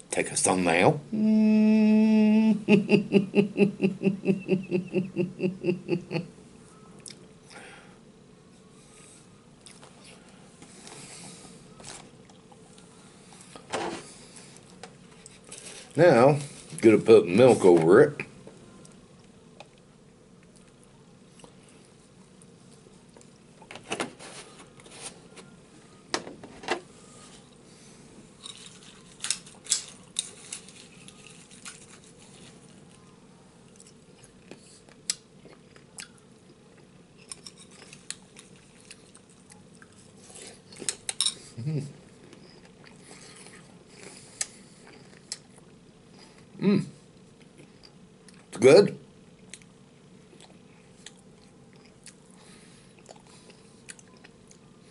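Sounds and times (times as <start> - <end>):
chewing: 9.6 - 10.2, 28.4 - 46.5, 49.4 - 54.7.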